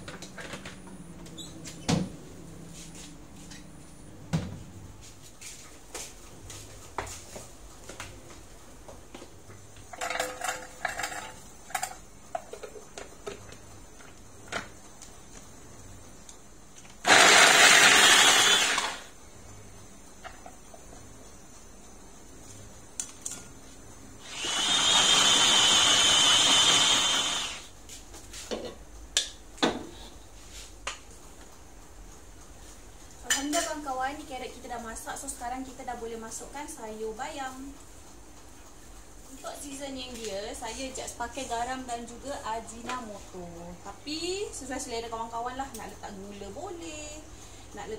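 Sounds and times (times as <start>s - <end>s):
electric food chopper running: 17.0s - 19.1s, 24.2s - 27.7s.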